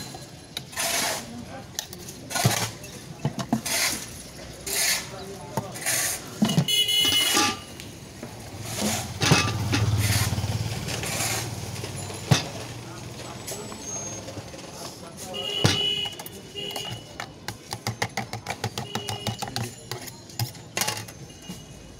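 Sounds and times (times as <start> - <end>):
steel mugs and lids clinking: 0.0 - 7.8, 8.5 - 14.5, 15.6 - 21.9
motorcycle engine running: 8.5 - 13.2.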